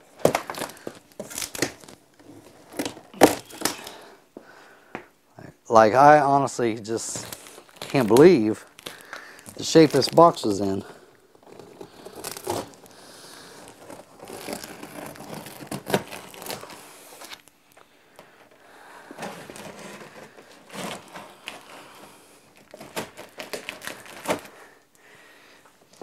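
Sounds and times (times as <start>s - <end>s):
tape and cardboard tearing: 0.2s - 4.0s, 11.4s - 17.5s, 19.2s - 24.6s.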